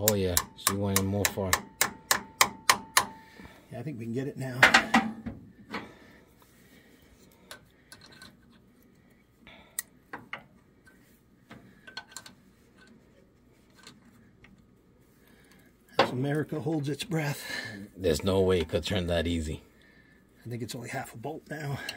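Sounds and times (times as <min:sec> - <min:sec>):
wrench metallic clicks: 0:00.0 - 0:03.2.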